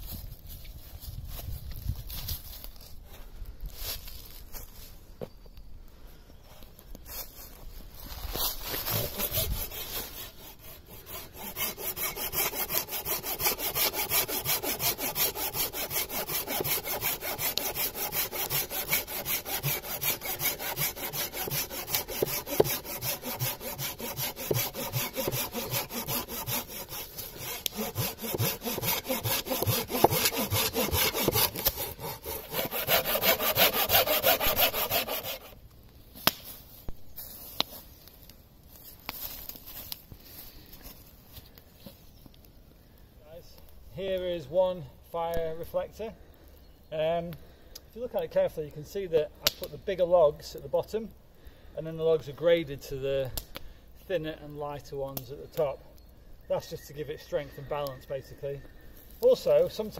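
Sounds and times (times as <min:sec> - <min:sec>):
hand saw cutting log: 0:08.6 - 0:35.6.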